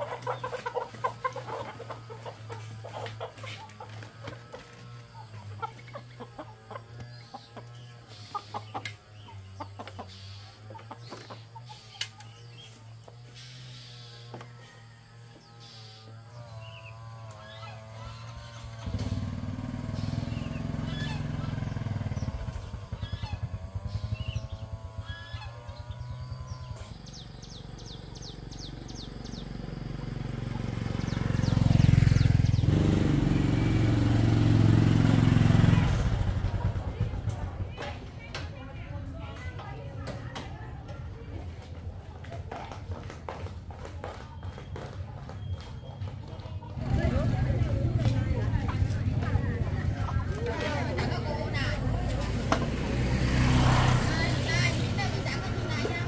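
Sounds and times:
chick peeping: 0.0 - 12.8
chickens clucking: 0.0 - 27.8, 39.3 - 56.0
small engine puttering: 0.0 - 56.0
steady low hum: 21.7 - 33.7.

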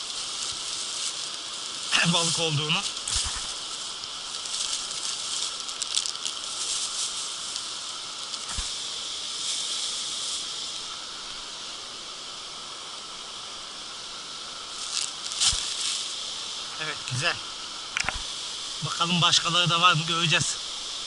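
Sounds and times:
plastic bag crinkling: 0.0 - 8.7
steady high hiss: 0.0 - 21.0.

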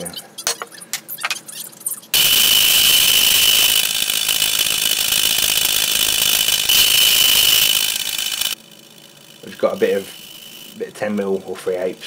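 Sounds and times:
pillar drill boring into steel: 2.2 - 8.6, 9.2 - 12.0.

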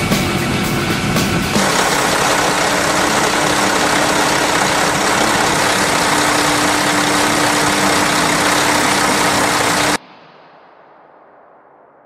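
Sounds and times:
diesel engine idling: 1.6 - 10.0
steady hum: 1.6 - 10.0.

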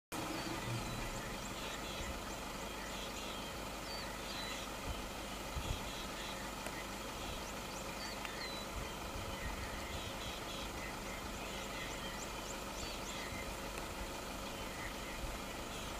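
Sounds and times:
outdoor background hum and hiss: 0.1 - 15.9.

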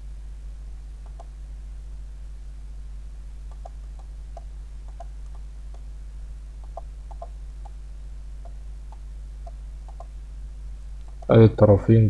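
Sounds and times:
low electrical hum: 0.0 - 12.0
computer mouse clicking: 1.0 - 1.3, 3.5 - 5.8, 6.6 - 7.8, 8.4 - 10.1, 11.0 - 11.3.

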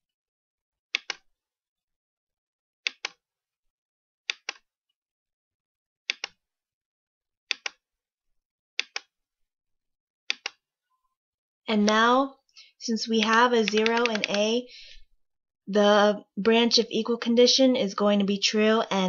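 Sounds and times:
computer mouse clicks: 1.0 - 1.2, 2.9 - 3.2, 4.3 - 4.6, 6.1 - 6.4, 7.5 - 7.8, 8.8 - 9.1, 10.3 - 10.6, 13.2 - 14.5.

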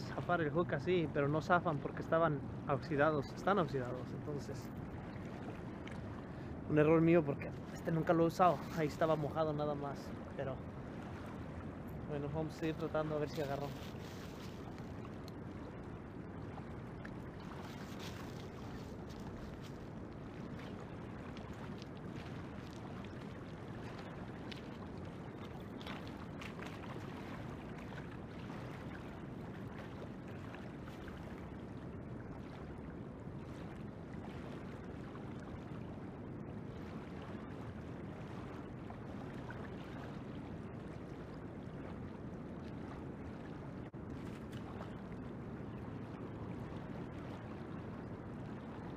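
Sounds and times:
river water rushing: 0.0 - 30.9.

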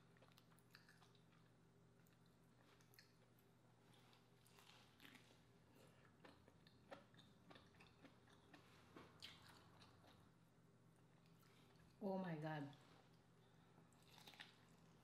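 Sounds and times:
wet chewing: 0.2 - 3.4, 4.0 - 10.2, 14.0 - 14.8.

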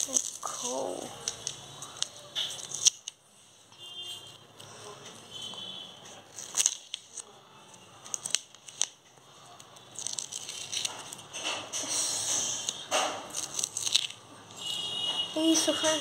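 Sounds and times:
tape and paper crinkling: 0.0 - 3.3, 6.0 - 14.5
paper rustling: 6.0 - 7.4, 8.0 - 14.2.

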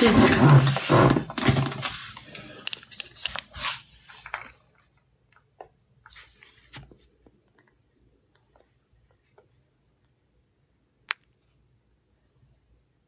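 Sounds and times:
rustling handling noises: 0.0 - 5.0, 6.0 - 9.6.

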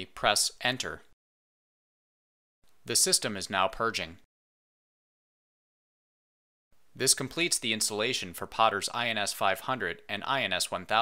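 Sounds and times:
narrator speaking: 0.0 - 1.1, 2.8 - 4.3, 7.0 - 11.0.

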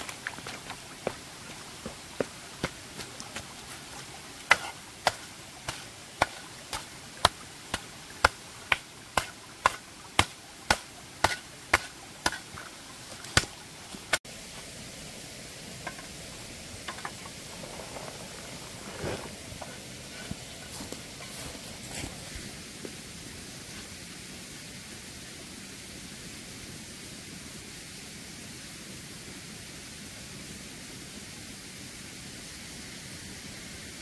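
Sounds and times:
wet mud slapping: 0.0 - 14.2.

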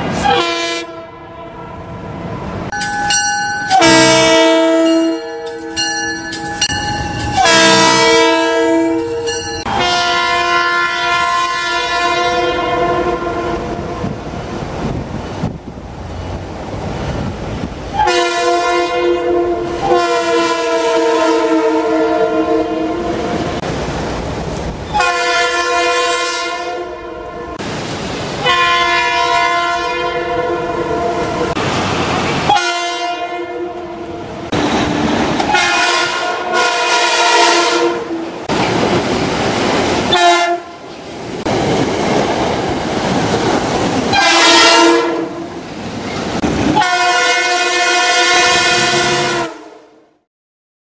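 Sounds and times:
train air horn blasts: 0.1 - 1.8, 3.7 - 14.1, 17.9 - 23.4, 24.9 - 27.6, 28.4 - 31.6, 32.5 - 34.2, 35.5 - 38.2, 40.1 - 40.8, 44.1 - 45.5, 46.8 - 50.0.

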